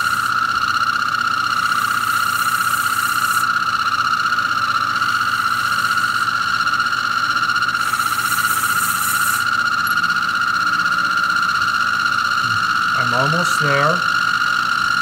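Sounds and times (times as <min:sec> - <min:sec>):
cutting tool hiss: 0:00.0 - 0:15.0
lathe motor whine: 0:00.0 - 0:15.0.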